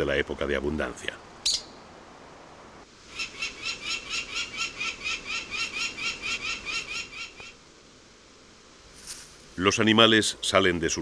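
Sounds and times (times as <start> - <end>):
falcon cacking calls: 3.1 - 7.6.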